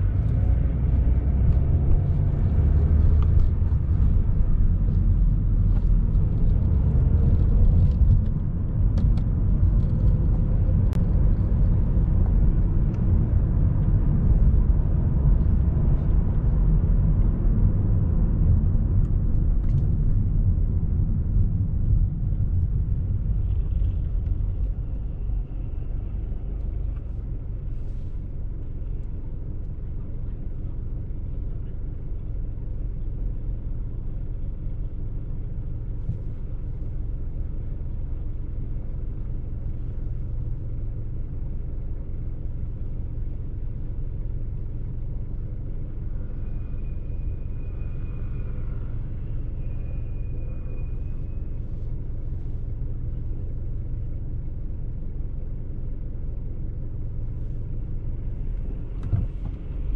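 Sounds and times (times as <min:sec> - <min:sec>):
car road and engine rumble: 0:00.0 - 0:59.9.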